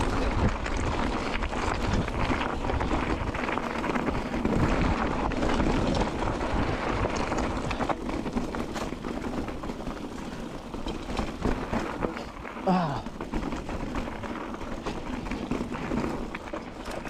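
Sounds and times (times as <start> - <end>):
wind buffeting microphone: 0.0 - 12.4.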